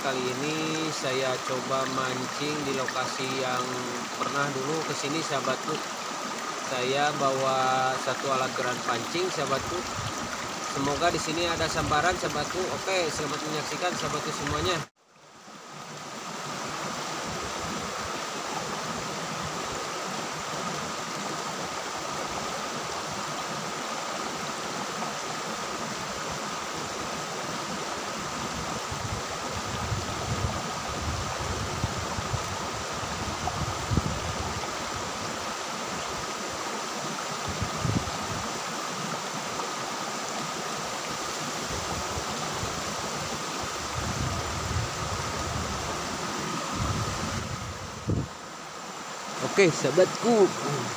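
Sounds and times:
water rushing over rocks: 0.0 - 50.9.

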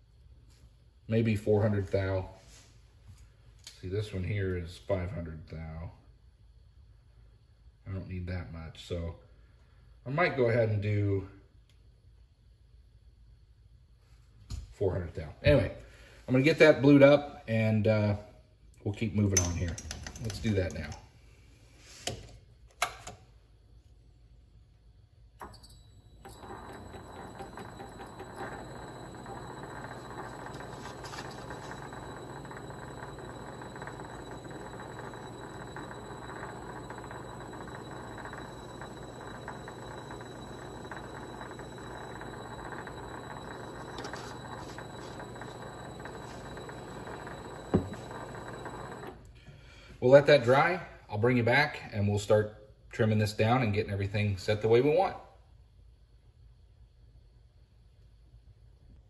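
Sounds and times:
mini lathe running: 26.2 - 49.3.

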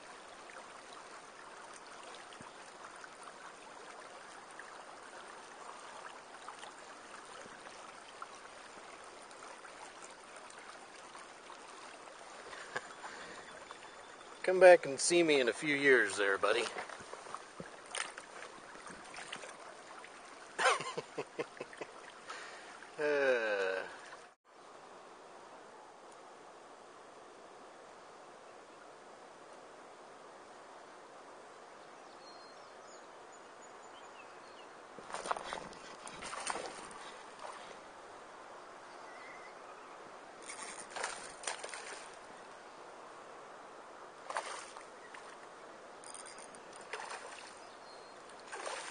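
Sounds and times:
water splashing in stream: 0.0 - 24.4, 35.0 - 38.5, 40.4 - 42.7, 44.1 - 48.9
creek trickling: 0.0 - 24.8, 27.6 - 48.9.

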